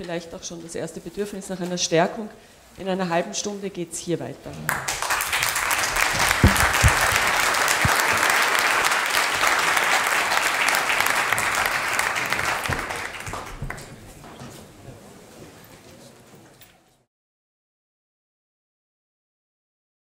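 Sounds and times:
audience applauding: 4.7s - 14.0s
low thumps: 5.9s - 8.2s.

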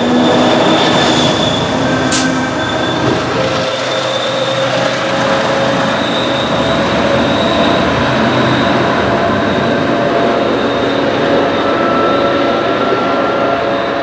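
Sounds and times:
diesel locomotive drone: 0.0s - 14.0s.

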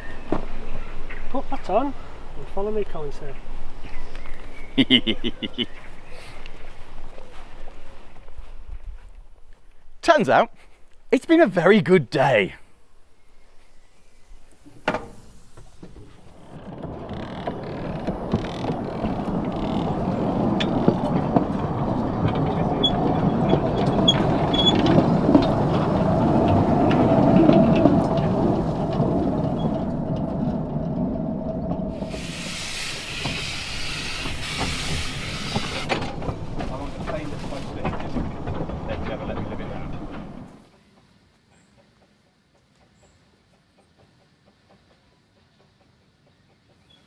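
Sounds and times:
steady steam hiss: 12.7s - 16.3s, 32.0s - 36.0s
steam locomotive wheels clattering: 14.3s - 47.0s.

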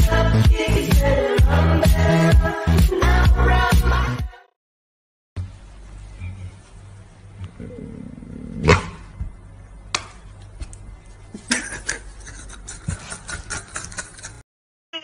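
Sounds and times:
low steady hum: 5.4s - 13.8s.

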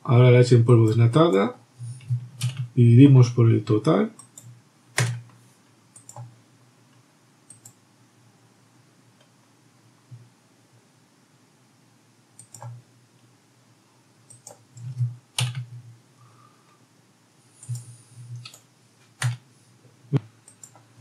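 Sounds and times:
keyboard keystrokes: 4.2s - 5.3s, 12.4s - 12.8s
mouse clicks: 6.0s - 6.3s, 12.4s - 12.8s.

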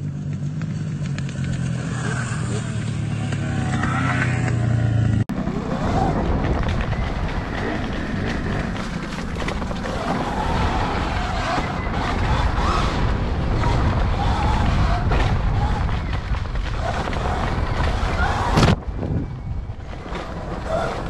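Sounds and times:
dirt bike engine rumble: 0.0s - 21.0s.

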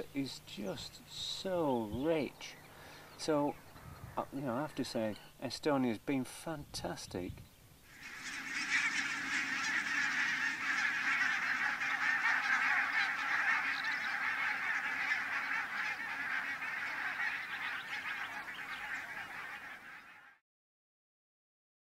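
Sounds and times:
flock of geese calling: 7.9s - 20.4s.

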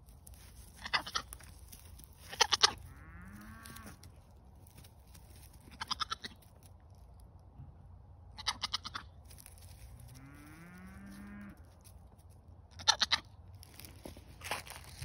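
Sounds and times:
young goat moaning call: 2.3s - 4.1s.

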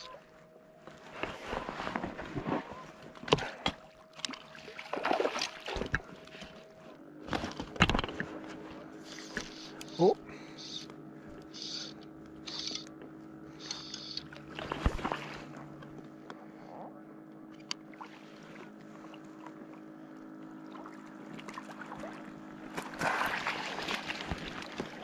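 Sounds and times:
faint steady hum: 0.0s - 25.0s
water lapping around boat: 0.0s - 25.0s
fish splashing: 4.3s - 6.1s, 21.5s - 25.0s.

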